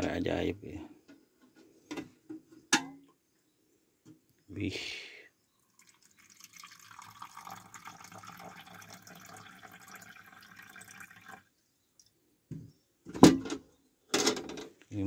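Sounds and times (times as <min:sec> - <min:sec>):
water pouring into plastic cup: 0:05.7 - 0:11.5.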